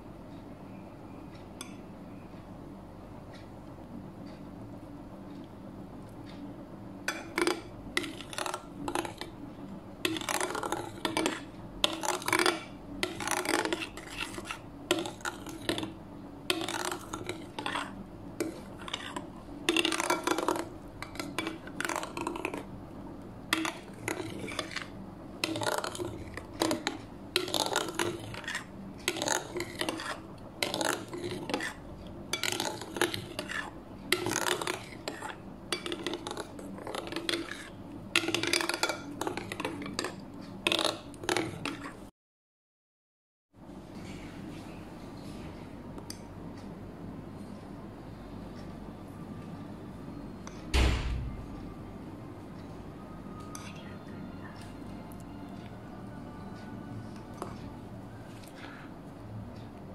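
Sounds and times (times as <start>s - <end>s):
metal spoon scraping glass bowl: 10.1s - 15.9s, 16.5s - 22.6s, 23.6s - 31.8s, 32.4s - 40.1s.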